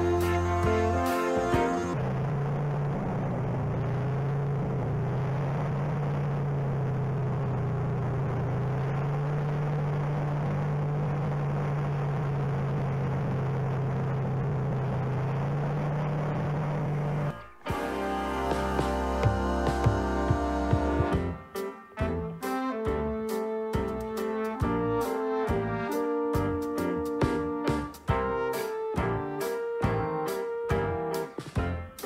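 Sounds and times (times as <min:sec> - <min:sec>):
music: 0:00.0 - 0:02.0, 0:17.3 - 0:32.0
snowmobile engine running: 0:00.0 - 0:21.4, 0:23.8 - 0:31.1.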